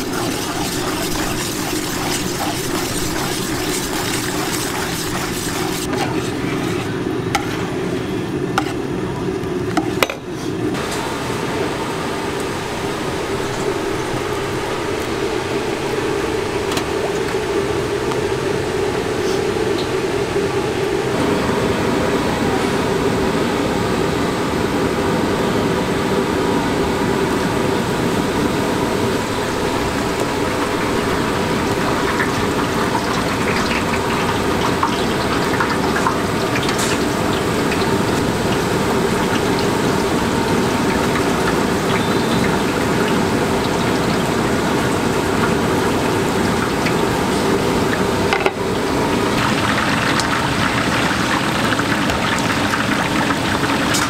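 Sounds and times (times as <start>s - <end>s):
sharp oil crackles: 0.0s - 6.0s
oil sizzling and bubbling: 0.0s - 21.2s, 27.3s - 54.0s
steady hum: 0.0s - 54.0s.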